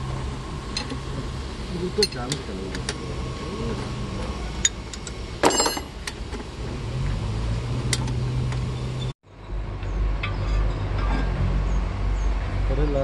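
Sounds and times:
vehicle engine hum: 0:00.0 - 0:13.0
spanner clinking on metal: 0:04.6 - 0:06.0.

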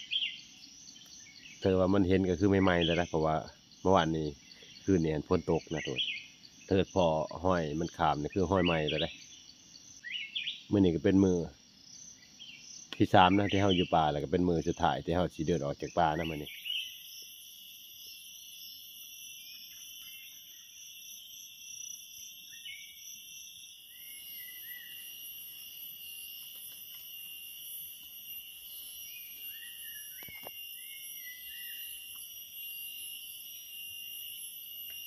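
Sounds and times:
faint chirps: 0:00.0 - 0:35.0
insects droning: 0:00.0 - 0:35.0.

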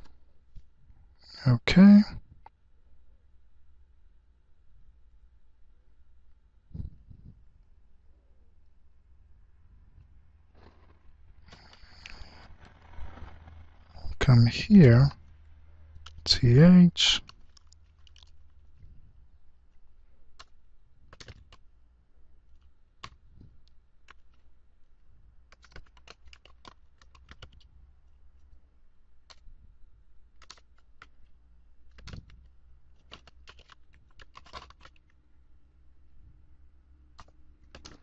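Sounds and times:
faint low hum: 0:00.0 - 0:38.0
computer keyboard typing: 0:20.3 - 0:21.6, 0:22.6 - 0:23.2, 0:24.0 - 0:24.4, 0:25.5 - 0:27.8, 0:29.2 - 0:29.5, 0:30.3 - 0:31.3, 0:31.9 - 0:35.2, 0:37.1 - 0:38.0.

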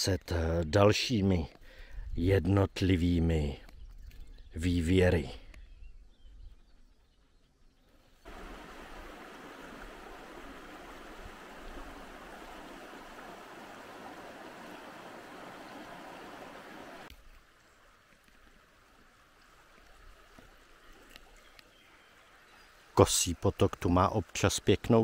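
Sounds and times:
forest stream flowing: 0:08.0 - 0:25.0.

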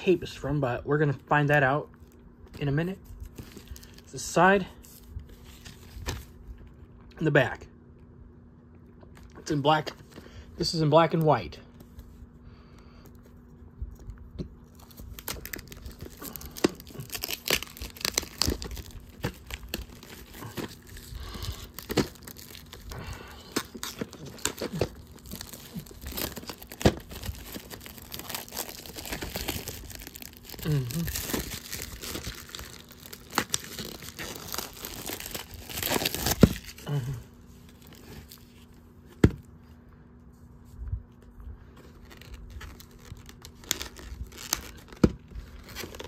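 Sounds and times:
plastic packaging crinkling: 0:01.9 - 0:04.2, 0:13.1 - 0:38.8, 0:41.7 - 0:46.0.

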